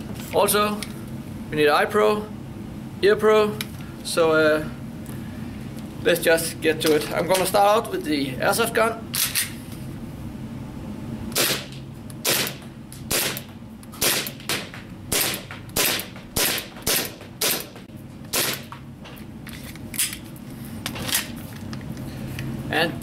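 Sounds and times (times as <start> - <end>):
airsoft pistol shots: 11.4 - 18.7.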